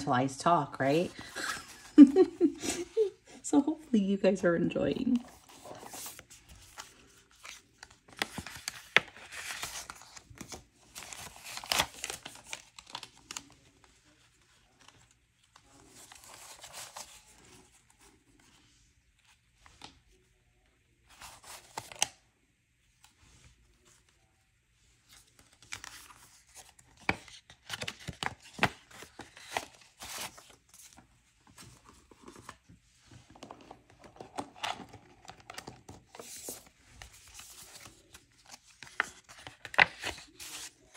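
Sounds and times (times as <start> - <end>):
paper banknotes rustling: 33.4 - 40.9.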